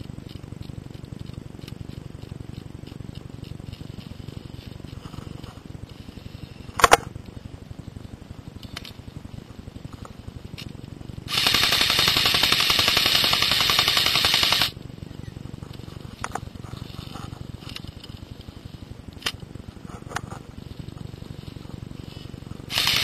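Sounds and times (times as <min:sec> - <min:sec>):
airsoft rifle full-auto burst: 0:11.3 - 0:14.8, 0:22.7 - 0:23.0.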